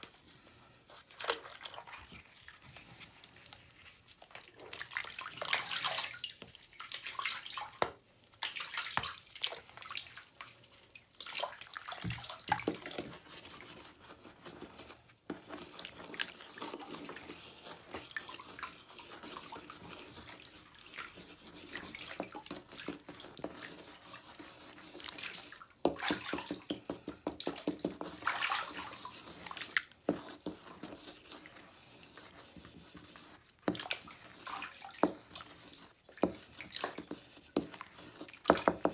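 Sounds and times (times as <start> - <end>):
water splashes and drips: 1.0 - 2.6, 3.2 - 13.2, 15.5 - 23.9, 24.9 - 30.6, 33.6 - 38.8.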